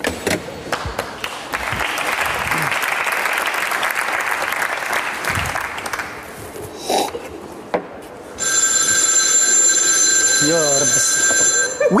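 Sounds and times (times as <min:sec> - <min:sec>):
studio audience applause: 0:00.7 - 0:06.2
telephone ringing: 0:08.4 - 0:12.0.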